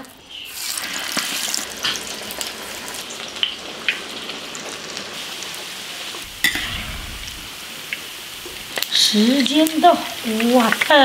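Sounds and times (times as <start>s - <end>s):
oil sizzling hiss: 0.4s - 11.0s.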